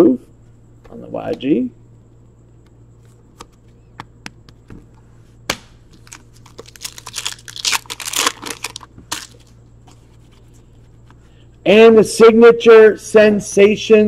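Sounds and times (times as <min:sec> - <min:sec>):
foil wrapper crinkling: 0:05.9 - 0:09.6
foil wrapper tearing with a snap: 0:05.9 - 0:09.6.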